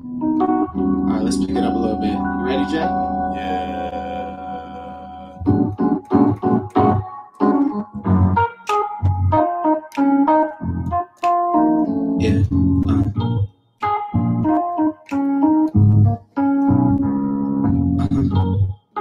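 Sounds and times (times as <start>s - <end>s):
low bass notes: 0.0s - 7.0s, 7.6s - 9.5s, 10.6s - 11.0s, 11.6s - 13.5s, 14.2s - 14.6s, 15.6s - 18.7s
electric keyboard chords: 0.0s - 19.0s.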